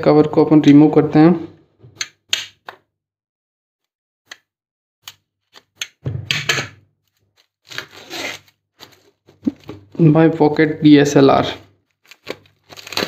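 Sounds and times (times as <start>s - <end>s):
plastic wrap crinkling and tearing: 7.0s - 9.9s, 11.8s - 13.0s.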